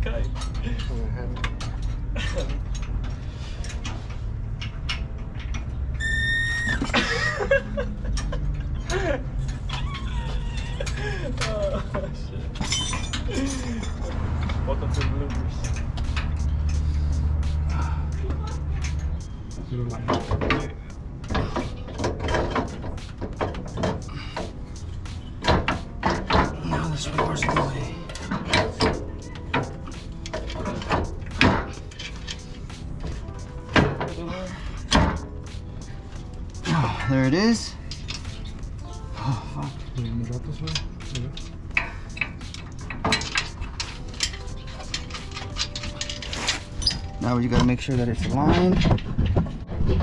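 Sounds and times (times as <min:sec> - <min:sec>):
high squeak: 0:06.0 - 0:06.9
metal knocks and scrapes: 0:12.5 - 0:38.9, 0:39.9 - 0:50.0.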